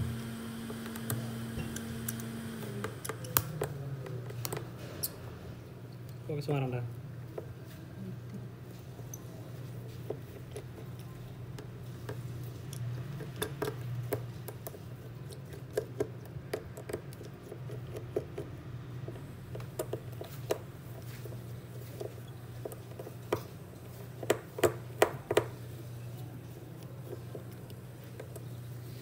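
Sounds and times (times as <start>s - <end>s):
steady low hum: 0.0s - 6.3s
tools clicking and tapping: 0.8s - 5.1s.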